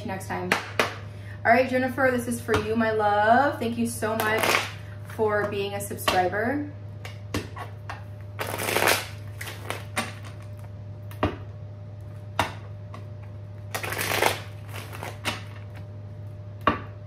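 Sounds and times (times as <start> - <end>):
steady low hum: 0.0 - 17.0
cards being shuffled: 8.4 - 10.2, 13.7 - 15.9.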